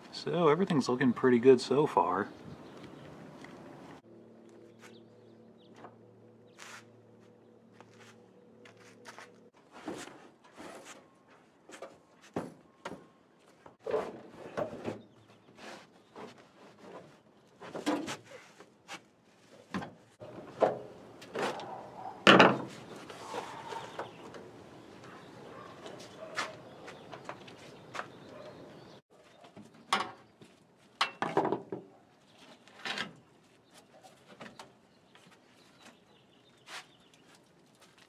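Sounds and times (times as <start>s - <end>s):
knocks and scrapes of car parts: 13.7s - 19.0s, 19.6s - 23.1s.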